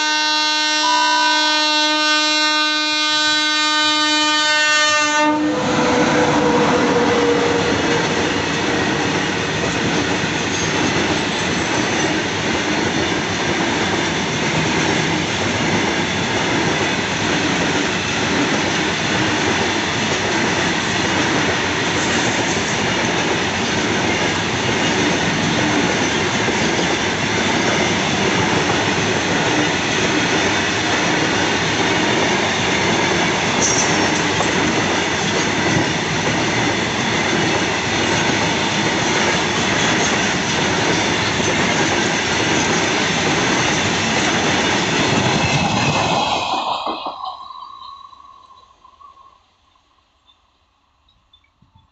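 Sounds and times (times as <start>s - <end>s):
high squeal of wheel on rail: 3.6s - 12.3s, 33.5s - 34.5s, 44.6s - 50.6s
freight train wheels on rail joints: 3.9s - 49.2s.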